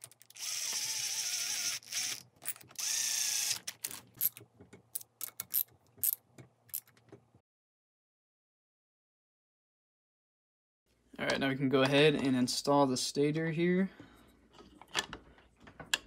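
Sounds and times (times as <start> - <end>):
power driver spinning a bolt: 0.2 - 3.6.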